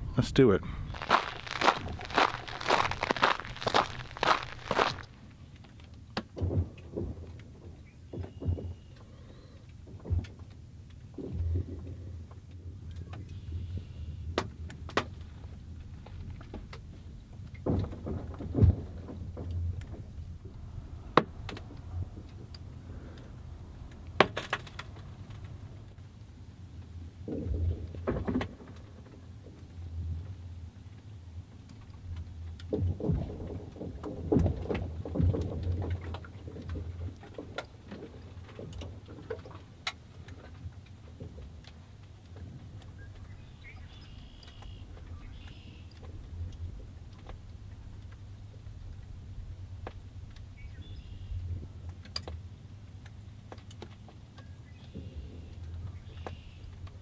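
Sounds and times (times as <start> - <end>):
ice cracking and popping: 0.9 - 5.2
lake ice cracking and popping: 0.9 - 7.6, 17.5 - 25.8, 31.7 - 43.3
deep thumps of ice: 1.0 - 5.2.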